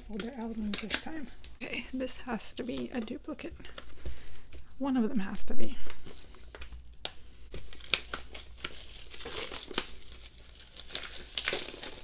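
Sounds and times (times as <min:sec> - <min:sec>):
packaging rustling and crinkling: 0:00.0 - 0:01.9, 0:05.8 - 0:12.0
small clicks and crackles: 0:00.1 - 0:01.6, 0:06.4 - 0:12.0.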